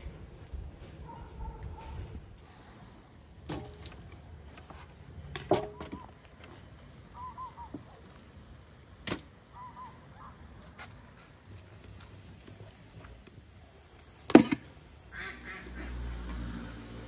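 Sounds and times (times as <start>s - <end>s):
small birds chirping: 1.1s - 2.8s, 7.1s - 8.1s, 9.5s - 10.4s.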